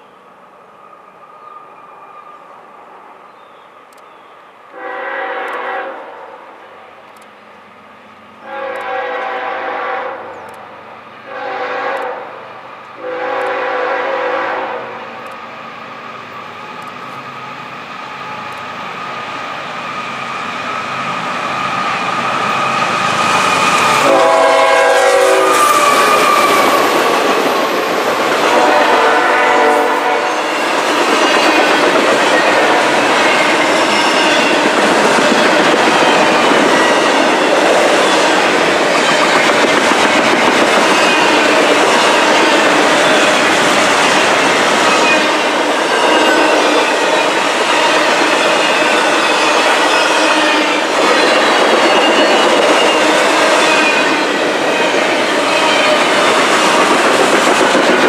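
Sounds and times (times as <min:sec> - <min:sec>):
train horn blasts: 0:04.7 - 0:06.4, 0:08.4 - 0:10.4, 0:11.2 - 0:15.0, 0:23.9 - 0:27.0, 0:28.4 - 0:30.7
train wheels rumbling on rails: 0:06.8 - 0:58.0.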